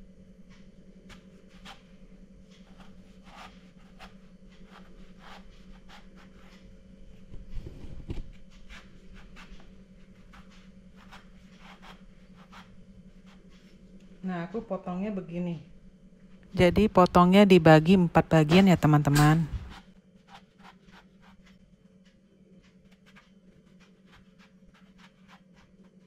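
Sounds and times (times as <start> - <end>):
steady low hum: 0.0 - 26.0
knife slicing eggplant: 8.6 - 13.5, 18.5 - 21.5, 22.9 - 26.0.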